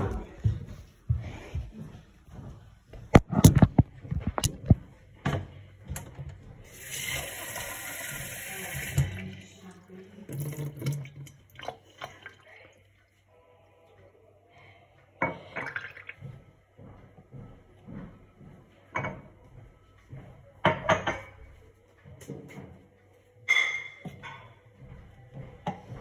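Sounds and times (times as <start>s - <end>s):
tap water filling a mug: 6.7s - 9.5s, 10.3s - 12.4s, 15.5s - 16.2s.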